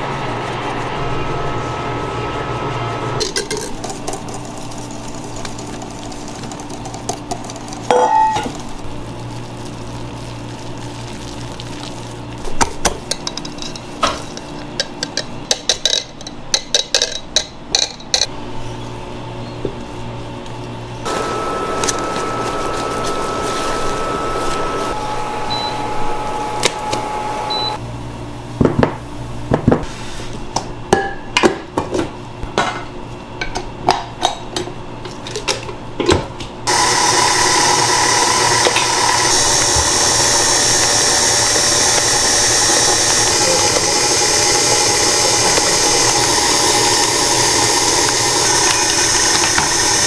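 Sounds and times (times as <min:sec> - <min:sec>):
steady hum: 0:20.8 - 0:28.4
stand mixer running: 0:21.1 - 0:27.8, 0:36.7 - 0:50.0.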